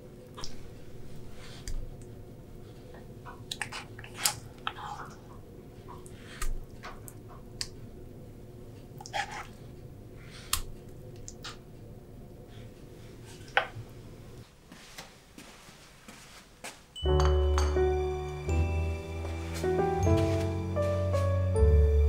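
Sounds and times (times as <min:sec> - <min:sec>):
wet porridge sounds: 0:03.3 - 0:07.8, 0:08.9 - 0:09.8
spoon tapping ceramic bowl: 0:17.0 - 0:18.0.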